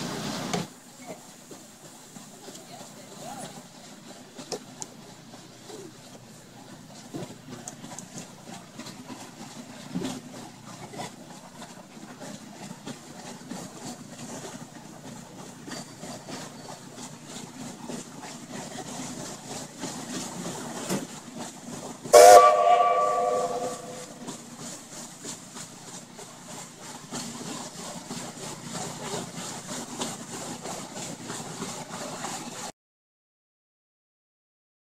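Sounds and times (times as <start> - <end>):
steam whistle blast: 22.1 - 24.2.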